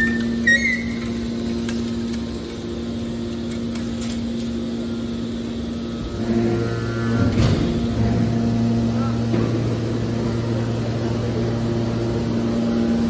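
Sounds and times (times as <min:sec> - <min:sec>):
brief high squeak: 0:00.0 - 0:01.1
hydraulic power unit humming: 0:00.0 - 0:13.0.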